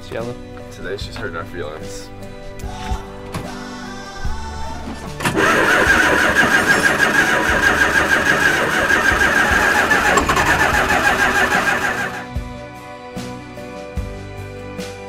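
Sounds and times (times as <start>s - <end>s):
bus engine cranking and starting: 5.1s - 12.3s
engine running with pulsing beat: 5.2s - 12.3s.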